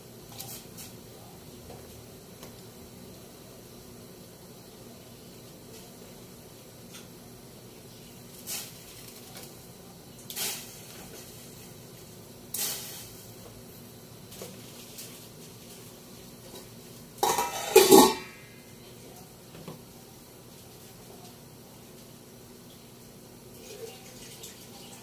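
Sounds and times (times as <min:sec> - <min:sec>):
metal pan clattering on pot: 0:17.2 - 0:18.4.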